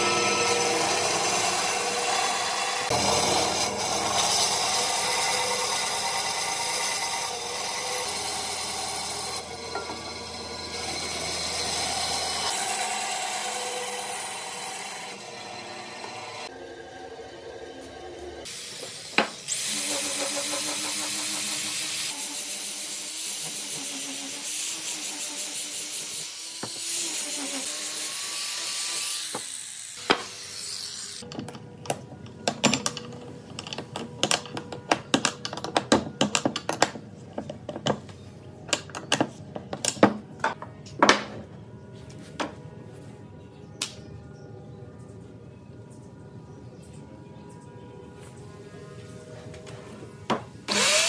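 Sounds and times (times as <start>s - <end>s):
power tool cutting wood: 0.0s - 31.3s, 50.7s - 51.0s
wood and tools knocking and clicking: 31.2s - 41.6s, 50.3s - 50.5s.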